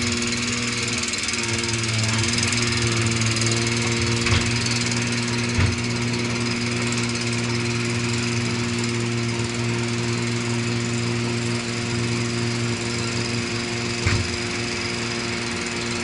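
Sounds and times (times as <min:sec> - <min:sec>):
hydraulic crane engine running: 0:00.0 - 0:16.0
short knocks: 0:05.5 - 0:06.0, 0:14.0 - 0:14.4.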